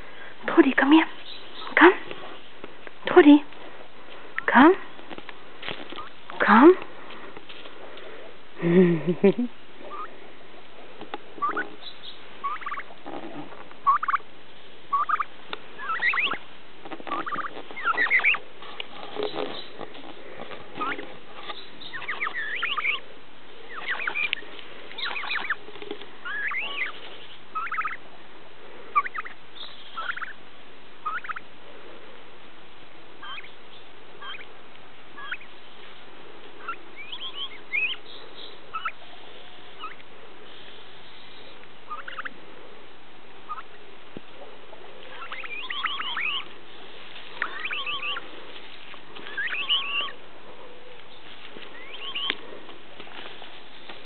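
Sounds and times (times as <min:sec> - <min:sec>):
turkey hen calling: 0:05.9 - 0:06.5, 0:09.8 - 0:14.3, 0:14.9 - 0:28.1, 0:28.9 - 0:30.4, 0:31.0 - 0:31.5, 0:33.2 - 0:34.5, 0:35.1 - 0:42.4, 0:43.4 - 0:43.8, 0:45.0 - 0:52.8.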